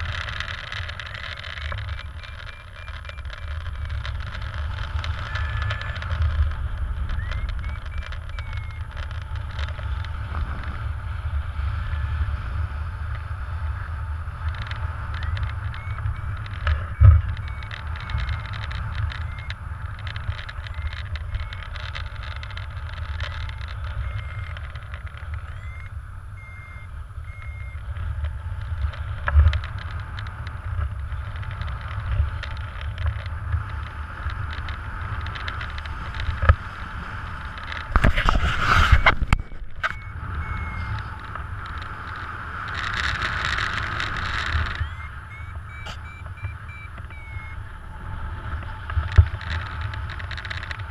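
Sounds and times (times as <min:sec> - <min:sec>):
short high beeps: 0:00.0 - 0:09.0, 0:15.1 - 0:27.9, 0:38.2 - 0:42.2, 0:42.8 - 0:47.7.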